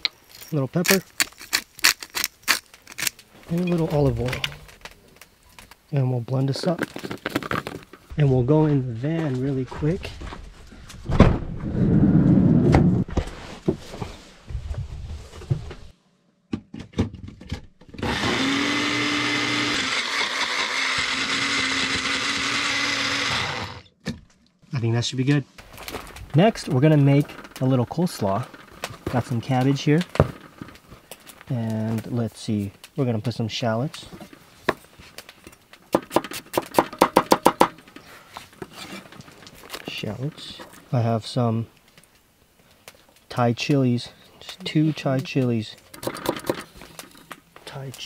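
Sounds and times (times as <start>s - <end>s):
blender motor running: 18.0s - 23.9s.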